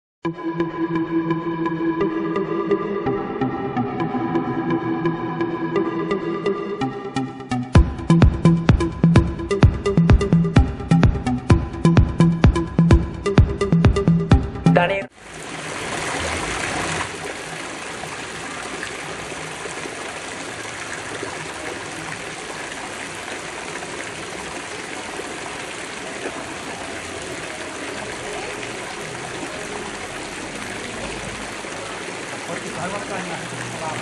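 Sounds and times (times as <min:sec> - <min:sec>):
water splashing into stone basin: 0:15.2 - 0:34.0.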